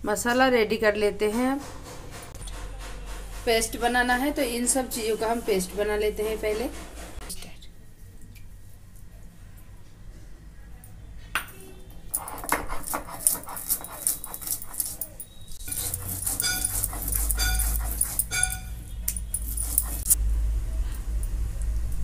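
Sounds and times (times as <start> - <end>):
stone roller grinding spices: 12.1 - 20.2.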